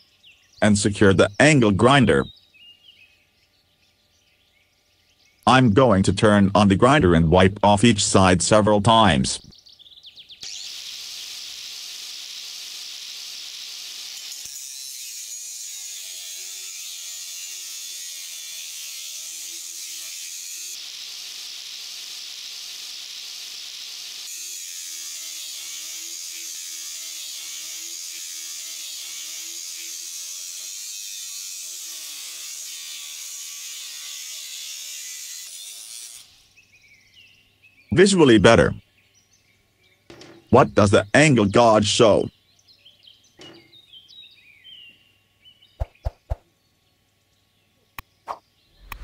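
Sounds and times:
angle grinder grinding steel: 0:10.4 - 0:36.4.

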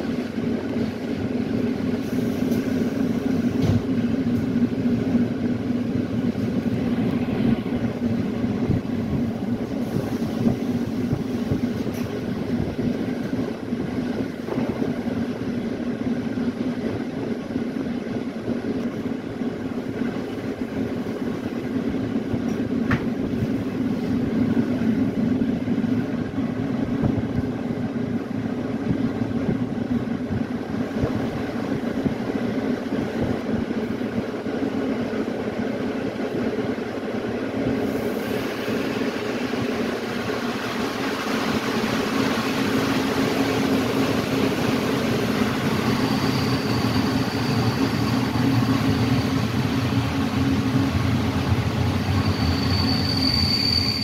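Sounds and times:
train wheels on rails: 0:00.0 - 0:54.0.

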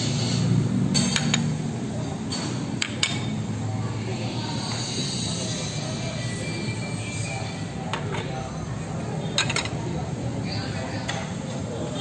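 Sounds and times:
ceramic plates clinking: 0:09.2 - 0:10.0.

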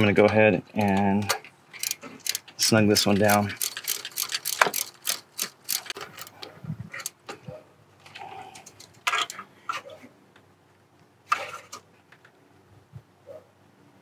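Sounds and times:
ratchet clicking on a bolt: 0:00.8 - 0:06.4.

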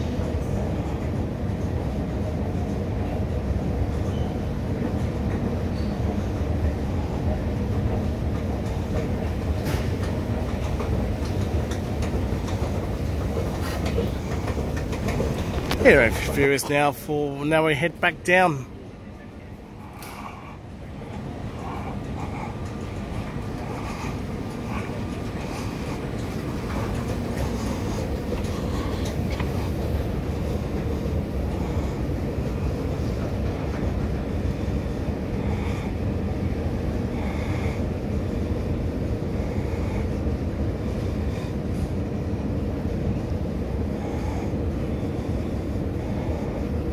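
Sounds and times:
escalator rumble and hum: 0:00.0 - 0:46.9.

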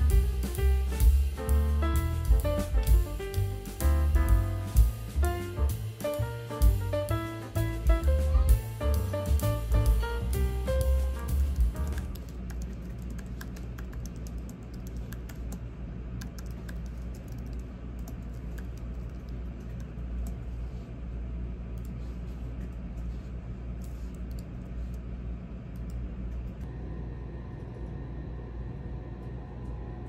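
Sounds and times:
steady low hum: 0:00.0 - 0:30.0
keyboard typing clicks: 0:11.8 - 0:15.6, 0:16.2 - 0:20.4.

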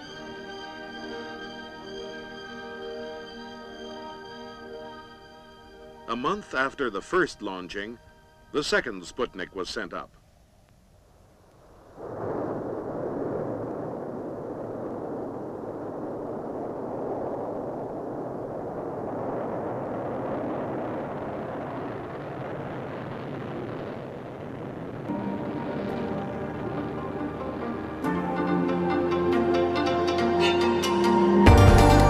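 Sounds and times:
music: 0:00.0 - 0:09.8, 0:25.1 - 0:32.0
rocket engine roaring: 0:11.6 - 0:32.0.

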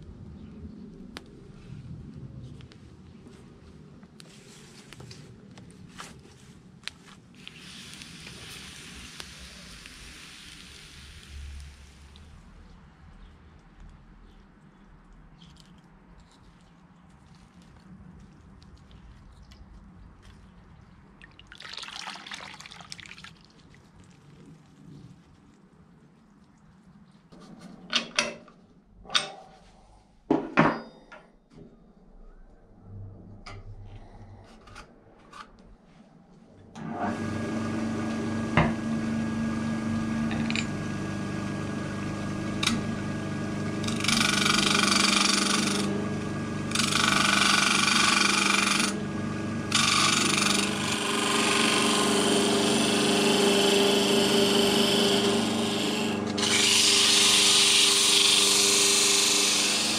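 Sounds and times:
wood lathe humming: 0:36.8 - 0:59.9
gouge cutting wood hissing: 0:42.6 - 0:49.1, 0:49.7 - 0:59.9.

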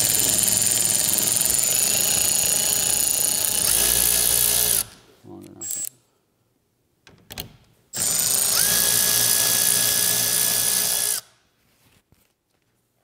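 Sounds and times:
electric ratchet running: 0:00.0 - 0:04.9, 0:08.0 - 0:11.2.

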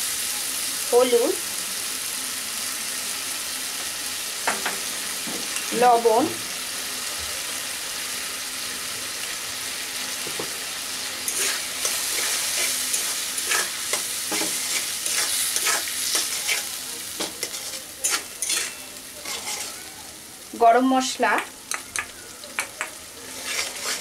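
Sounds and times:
paste sizzling in oil: 0:00.0 - 0:24.0
metal spatula scraping pan: 0:11.3 - 0:19.9, 0:23.2 - 0:24.0.

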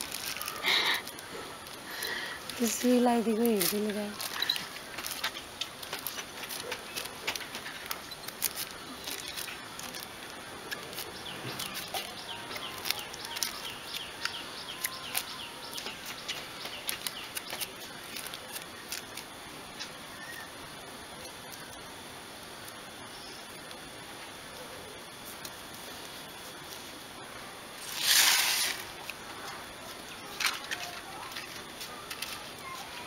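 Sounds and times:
plastic strip crinkling: 0:00.0 - 0:20.4, 0:30.2 - 0:33.0.

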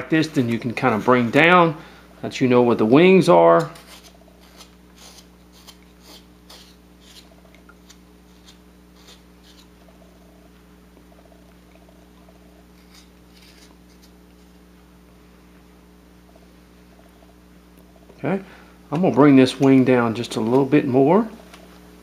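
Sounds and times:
steady low hum: 0:00.0 - 0:22.0
knife scraping wood: 0:03.6 - 0:09.8, 0:12.7 - 0:14.5.

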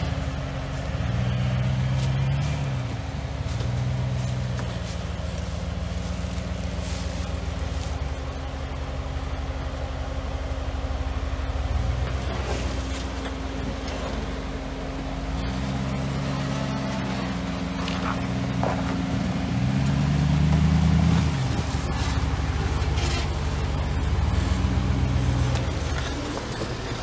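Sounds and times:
engine revving at low speed: 0:00.0 - 0:27.0
tyres knocking and scraping on rock: 0:17.7 - 0:19.2.

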